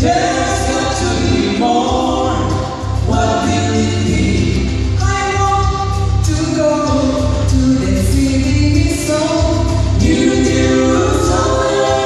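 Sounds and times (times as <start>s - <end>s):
people singing a hymn in harmony: 0.0s - 5.1s, 9.1s - 12.0s
instrumental accompaniment with bass: 0.0s - 12.0s.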